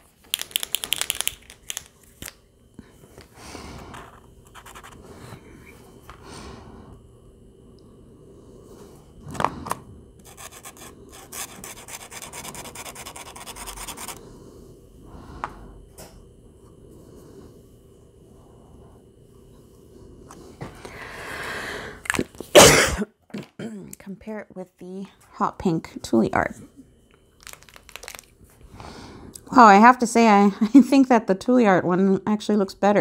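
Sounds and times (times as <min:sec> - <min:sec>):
marker scratching on paper: 0:04.5 - 0:05.0, 0:10.2 - 0:14.2.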